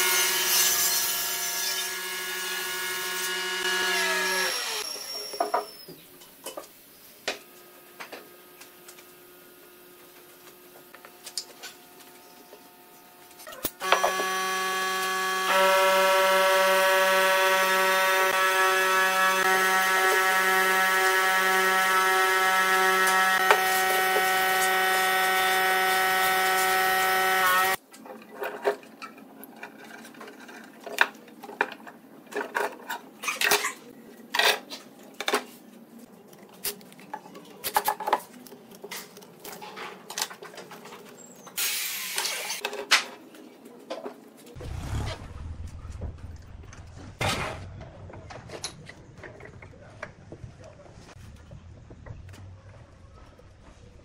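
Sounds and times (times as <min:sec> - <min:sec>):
loud multi-tone whine: 0:13.8 - 0:27.8
low hum: 0:44.6 - 0:49.1.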